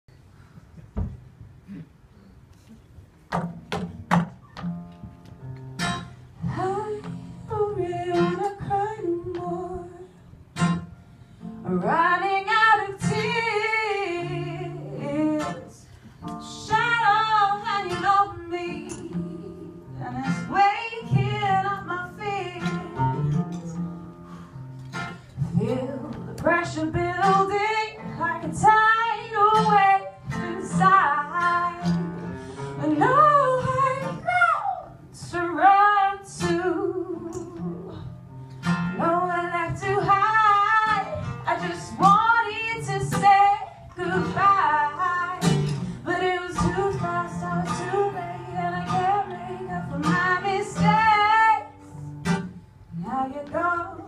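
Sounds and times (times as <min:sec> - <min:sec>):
woman singing into a microphone: 0:06.4 - 0:10.7, 0:11.4 - 0:23.8, 0:25.4 - 0:38.2, 0:38.8 - 0:54.0
classical guitar plucked notes: 0:13.0 - 0:34.0.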